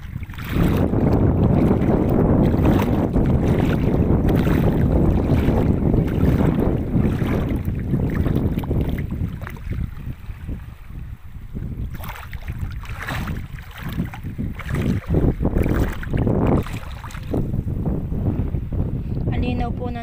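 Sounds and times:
waves washing at shore: 0.0 - 17.6
wind buffeting microphone: 0.0 - 20.0.

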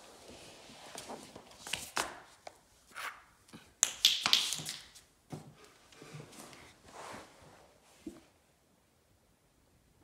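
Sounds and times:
small ball bouncing on tile floor: 3.8 - 5.0.

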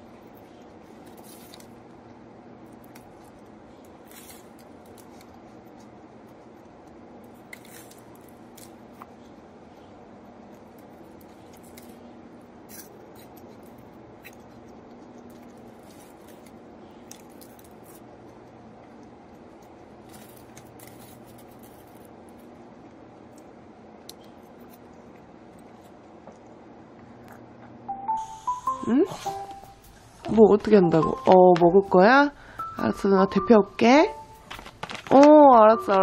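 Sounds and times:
low steady hum: 0.0 - 36.0
crust crunching and crackling: 0.1 - 26.6, 34.4 - 36.0.

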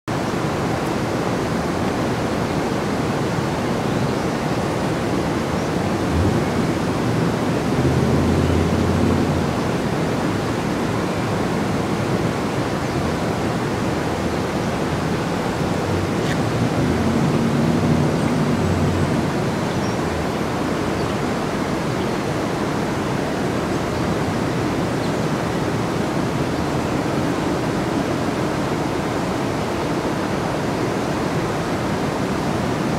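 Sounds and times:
fountain water rushing over stone: 0.2 - 32.9
passing vehicle rumble: 15.9 - 19.6.

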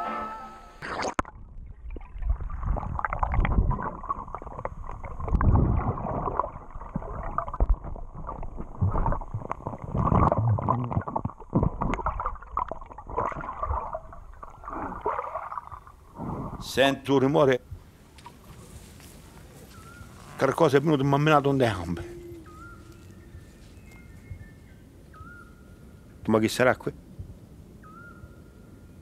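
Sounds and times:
faint high whine: 0.0 - 0.8
underwater water surges: 0.8 - 16.8.

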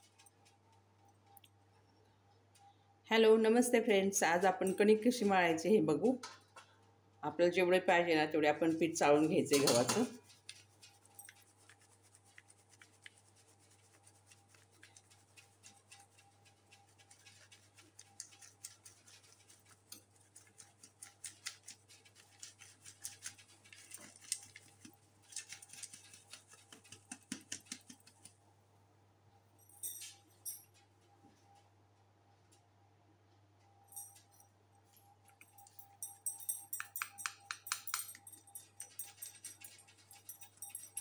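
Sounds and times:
sieve tapping and rustling: 9.4 - 10.6.

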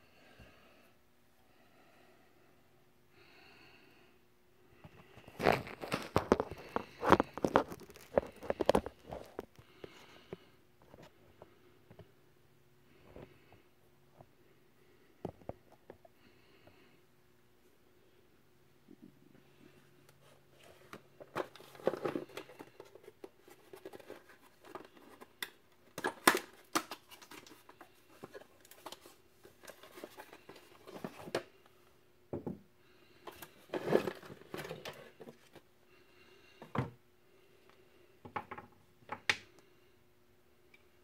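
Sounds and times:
cardboard box rustling: 33.3 - 35.6.

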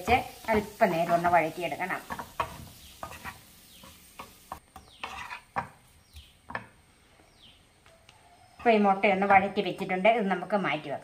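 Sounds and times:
wooden spatula scraping a pan: 0.0 - 6.7.

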